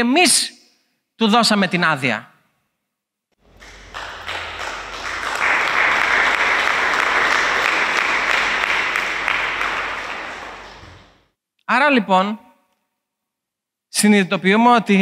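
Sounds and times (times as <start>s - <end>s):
congregation applauding: 3.4s - 11.2s.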